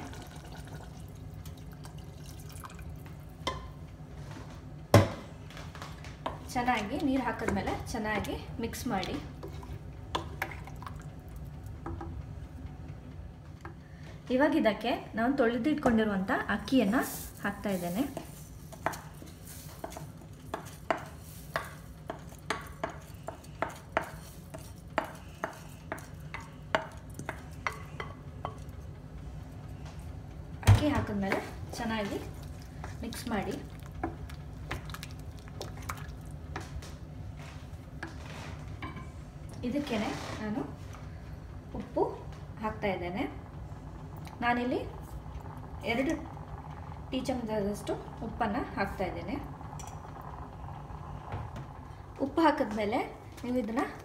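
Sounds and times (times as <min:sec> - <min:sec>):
water pouring into a pot: 0:00.0 - 0:03.0.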